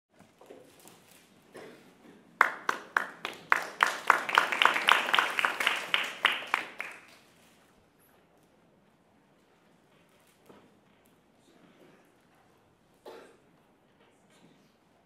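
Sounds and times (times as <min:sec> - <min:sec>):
small audience applause: 0:02.4 - 0:07.4.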